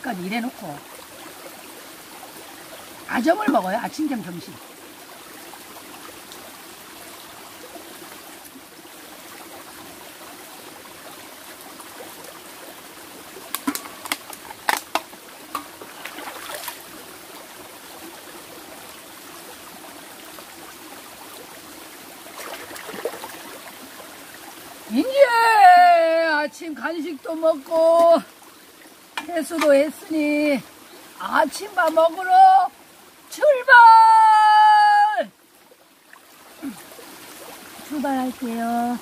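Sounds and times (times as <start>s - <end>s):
stream running over rocks: 0.0s - 39.0s
drink can clicks and taps: 13.5s - 15.8s.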